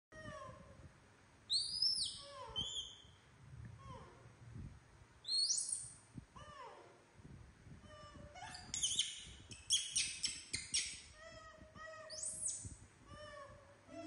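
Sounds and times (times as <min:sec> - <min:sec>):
baby monkey squealing: 0:01.5 - 0:03.1, 0:05.3 - 0:05.8, 0:08.0 - 0:11.2, 0:11.9 - 0:12.7.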